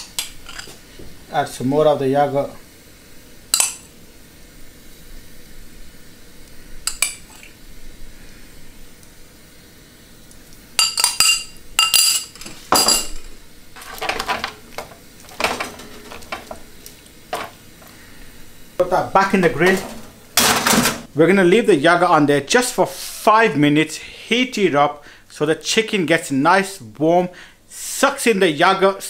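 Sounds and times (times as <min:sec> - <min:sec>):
utensils scraping metal tray: 0:13.8 - 0:16.6, 0:19.6 - 0:20.8.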